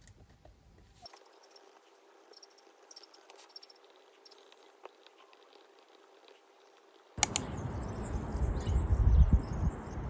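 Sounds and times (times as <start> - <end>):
faint high chirping: 1.0 - 5.8
sharp double click: 7.2 - 7.6
wind buffeting microphone: 7.4 - 10.0.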